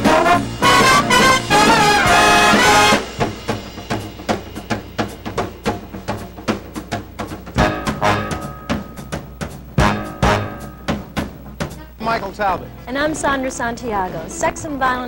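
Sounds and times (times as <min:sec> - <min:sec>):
held horn notes: 0:00.0 - 0:03.3, 0:07.6 - 0:11.2
big band jazz brass: 0:00.0 - 0:11.9
drum hits: 0:00.0 - 0:12.2.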